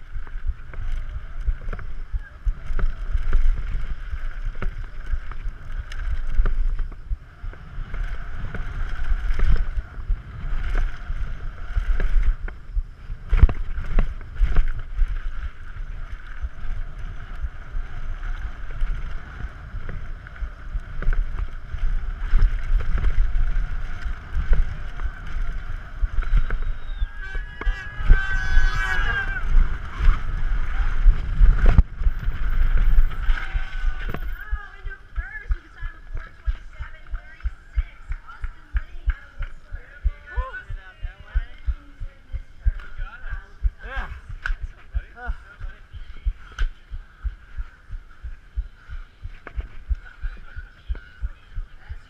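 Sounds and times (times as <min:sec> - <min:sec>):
bike tyres rumbling on dirt: 0:00.0 - 0:52.0
wind on camera microphone: 0:00.0 - 0:52.0
crowd voices: 0:23.7 - 0:52.0.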